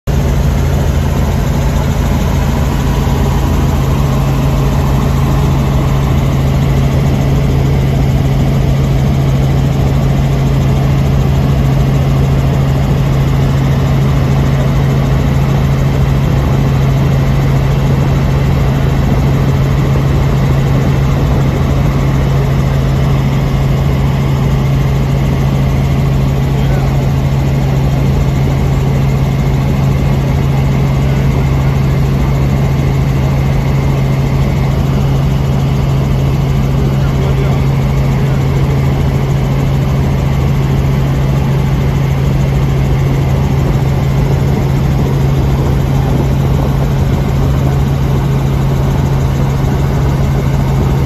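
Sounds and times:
helicopter engine and rotors droning: 0:00.0 - 0:51.0.

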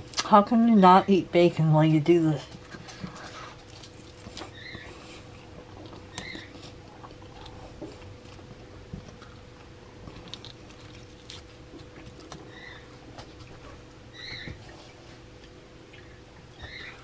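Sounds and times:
steady low hum: 0:00.0 - 0:17.0
crunching of crisp bacon: 0:02.7 - 0:13.6.

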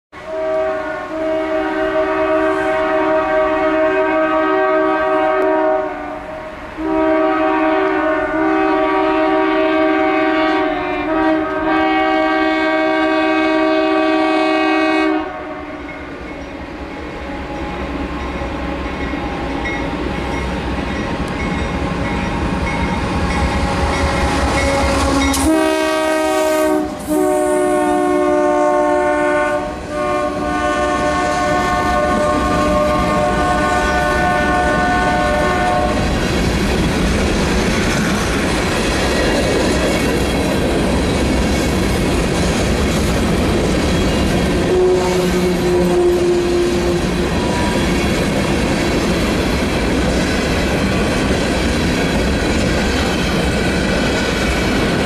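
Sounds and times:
locomotive air horn blasts: 0:00.2 - 0:15.9, 0:23.8 - 0:36.1, 0:44.6 - 0:47.8
train rumble passing: 0:00.4 - 0:55.0
train cars clickety-clack: 0:15.8 - 0:55.0.

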